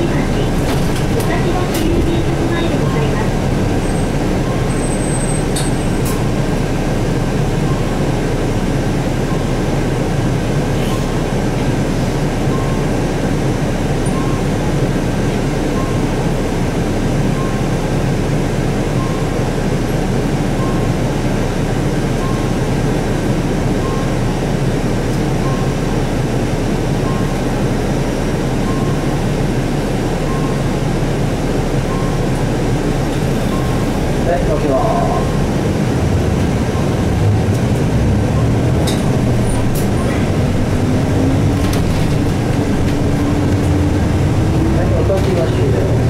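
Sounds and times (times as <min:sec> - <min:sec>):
bus interior hum: 0:00.0 - 0:46.0
turn signal beeps: 0:12.5 - 0:12.9, 0:14.1 - 0:14.5, 0:15.8 - 0:16.0, 0:17.4 - 0:17.6, 0:19.0 - 0:19.4, 0:20.6 - 0:21.0, 0:22.2 - 0:22.5, 0:25.4 - 0:25.8, 0:28.6 - 0:29.2, 0:30.3 - 0:30.7, 0:31.9 - 0:32.3, 0:33.5 - 0:33.9.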